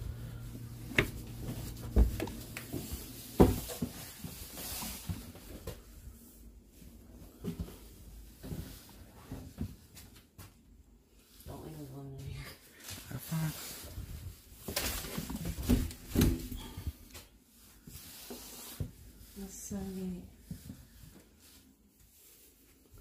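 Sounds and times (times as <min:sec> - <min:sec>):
knocks and thumps: 0:00.9 - 0:04.0.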